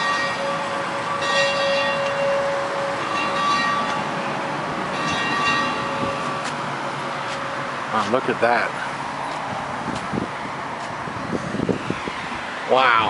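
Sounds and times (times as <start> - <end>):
metal bell ringing: 0.0 - 4.3, 4.9 - 6.2.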